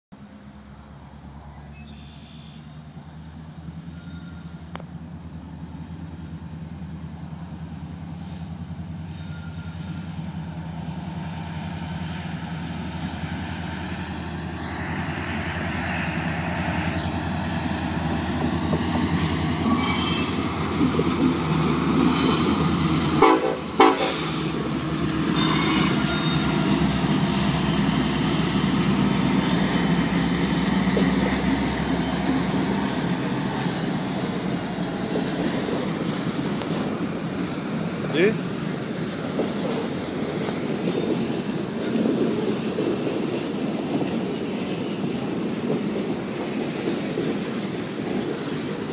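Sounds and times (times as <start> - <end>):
diesel locomotive engine drone: 0.2 - 48.9
train air horn: 23.2 - 24.6.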